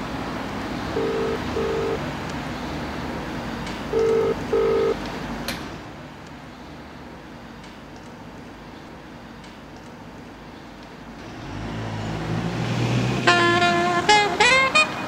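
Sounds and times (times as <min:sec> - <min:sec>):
street noise: 0:00.0 - 0:15.0
telephone ringing: 0:01.0 - 0:02.0, 0:03.9 - 0:05.0.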